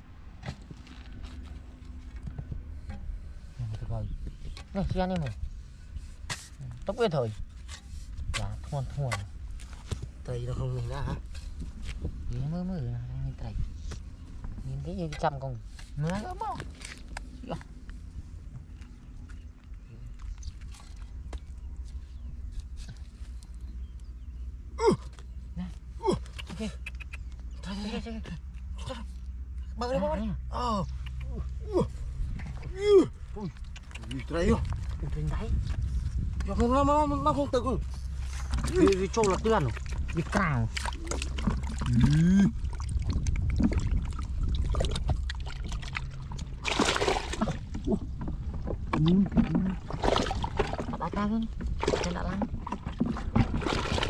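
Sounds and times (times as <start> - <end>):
low steady rumble: 0.0 - 54.0
stick scraping dry clay: 6.0 - 10.1
muddy water splashing: 38.0 - 54.0
clods crunching and knocking: 38.1 - 54.0.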